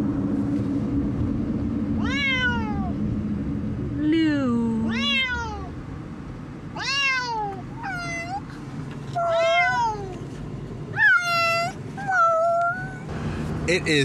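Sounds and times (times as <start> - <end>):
car road rumble: 0.0 - 14.0
cats meowing: 2.0 - 2.9, 4.9 - 5.7, 6.8 - 8.4, 9.2 - 10.2, 11.0 - 13.1.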